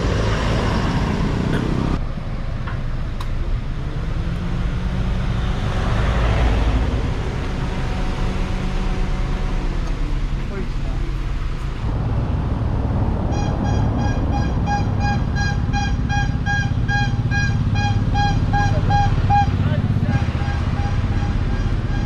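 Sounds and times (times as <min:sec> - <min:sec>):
traffic rushing: 0:00.0 - 0:22.0
car engine idling: 0:06.7 - 0:22.0.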